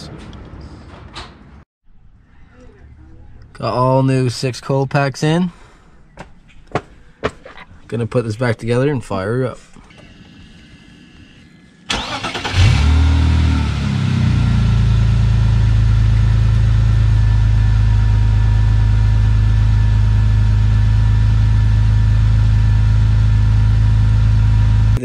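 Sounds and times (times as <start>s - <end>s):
car engine revving and idling: 10.2s - 25.0s
starter motor cranking: 11.9s - 13.0s.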